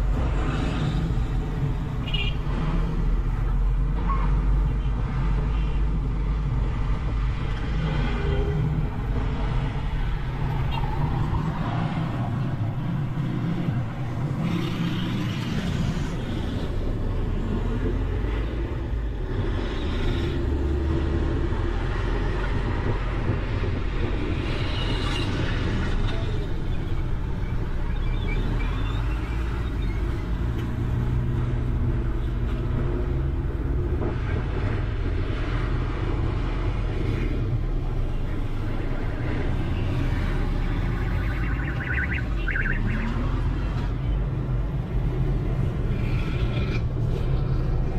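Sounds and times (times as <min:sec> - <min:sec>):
truck engine and road rumble: 0:00.0 - 0:47.9
motorcycles and cars passing: 0:30.1 - 0:47.9.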